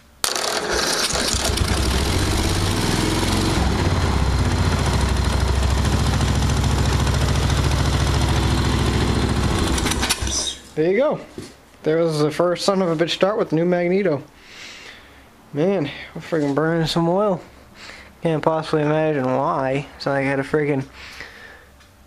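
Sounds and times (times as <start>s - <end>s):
lawn tractor engine running: 0.2s - 10.4s.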